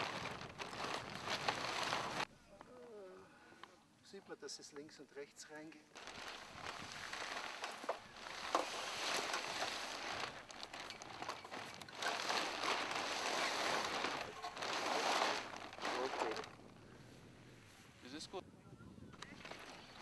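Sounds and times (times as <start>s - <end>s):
sail fabric rustling and crinkling: 0.0s - 2.3s, 5.9s - 18.4s, 19.2s - 20.0s.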